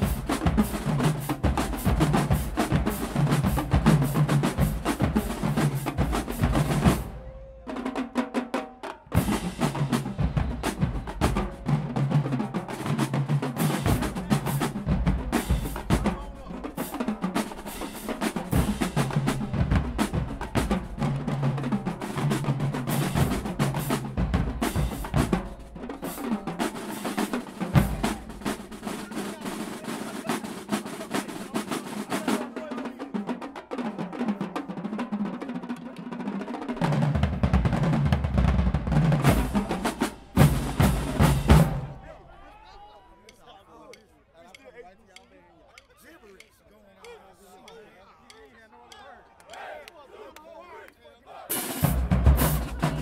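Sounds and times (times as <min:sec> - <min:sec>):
bass and tenor drums: 0:00.0 - 0:07.9, 0:09.1 - 0:29.6, 0:37.0 - 0:42.0, 0:51.6 - 0:53.0
snare drum rolls: 0:00.0 - 0:42.0, 0:51.5 - 0:53.0.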